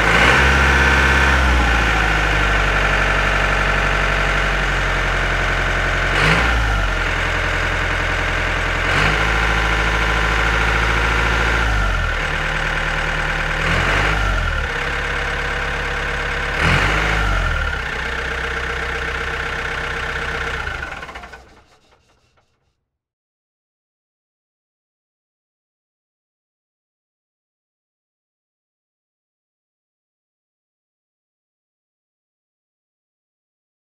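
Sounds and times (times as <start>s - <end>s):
tractor engine revving: 0.0s - 22.4s.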